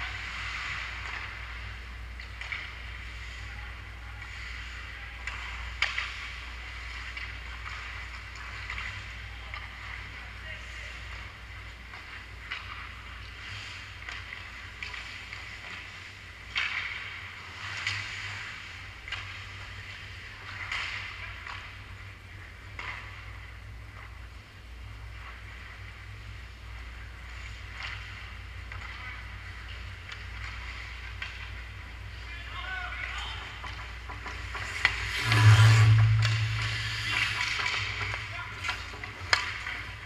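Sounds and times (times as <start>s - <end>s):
low hum: 33.4s - 40.0s
skate blades scraping ice: 33.6s - 40.0s.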